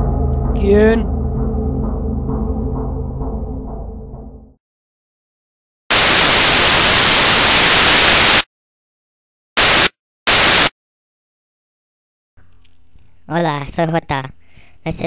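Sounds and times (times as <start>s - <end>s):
white-noise static bursts: 5.9s - 8.5s, 9.6s - 10.7s.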